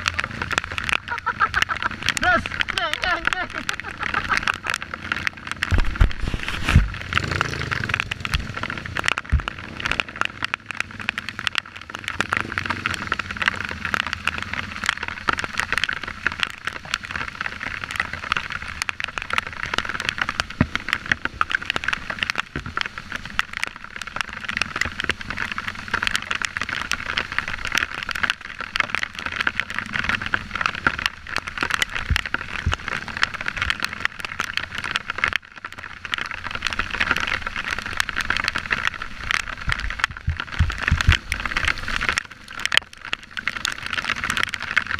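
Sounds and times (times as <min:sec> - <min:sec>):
crackling rattle of ride: 0:00.0 - 0:06.1, 0:07.0 - 0:44.9
dirt bike engine: 0:00.0 - 0:14.8.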